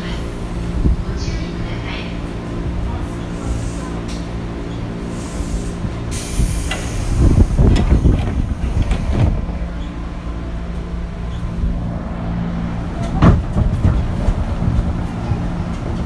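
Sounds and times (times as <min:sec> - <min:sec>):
train motor humming: 0:00.0 - 0:16.0
low rumbling knocks: 0:06.7 - 0:09.8, 0:12.9 - 0:16.0.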